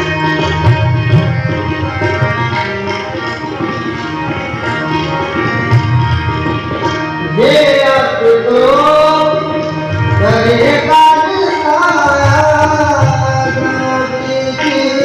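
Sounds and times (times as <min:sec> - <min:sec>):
harmonium tones: 0:00.0 - 0:15.0
tabla strokes: 0:00.0 - 0:15.0
man singing a hymn: 0:07.4 - 0:09.5, 0:10.2 - 0:15.0.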